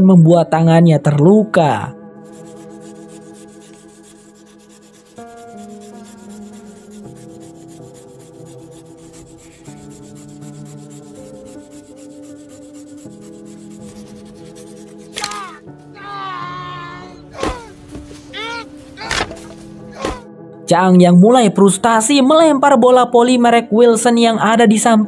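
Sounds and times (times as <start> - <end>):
slow background music: 0.0 - 25.0
wooden stick rubbing on board: 2.3 - 15.6.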